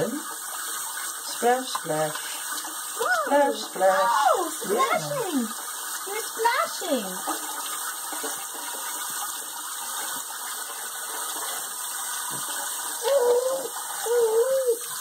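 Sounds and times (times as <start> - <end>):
faucet spraying into water: 0.0 - 15.0
baby splashing water: 0.7 - 9.0, 10.6 - 15.0
person speaking: 3.0 - 7.0.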